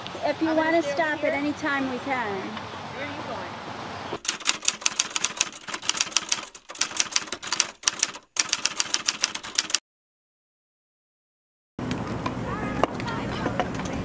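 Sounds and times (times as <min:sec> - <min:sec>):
typewriter keys clacking: 0:04.2 - 0:09.8.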